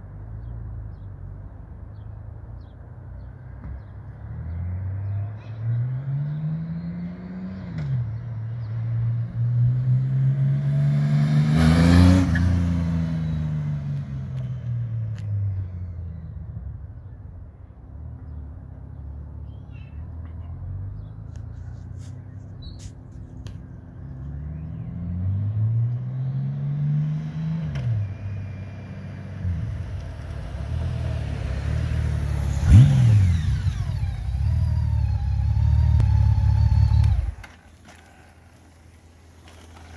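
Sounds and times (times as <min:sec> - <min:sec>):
motorcycle riding past: 0:04.4 - 0:15.0, 0:24.0 - 0:39.9.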